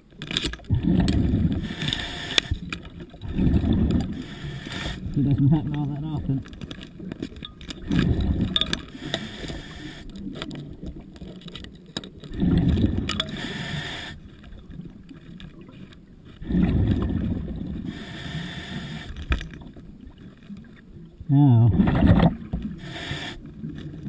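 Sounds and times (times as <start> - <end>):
diver exhaling bubbles: 0.7 - 2.6, 3.2 - 6.4, 12.3 - 13.9, 16.4 - 18.0, 21.5 - 22.8.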